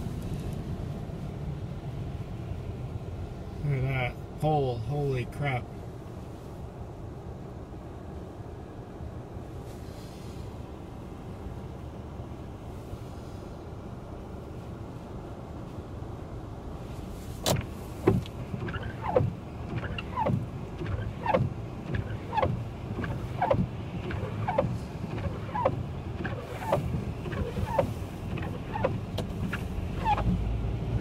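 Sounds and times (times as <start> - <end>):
windshield wipers squeaking: 17.4 - 31.0
wiper blade knock: 17.5 - 30.4.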